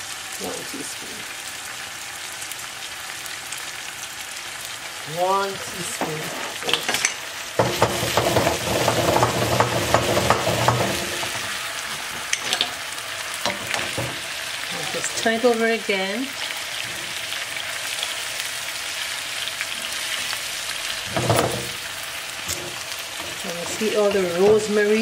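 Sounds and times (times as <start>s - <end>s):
fish sizzling in a frying pan: 0.0s - 25.0s
pan clattering on stove grate: 6.0s - 12.8s, 13.4s - 14.3s, 21.1s - 24.9s.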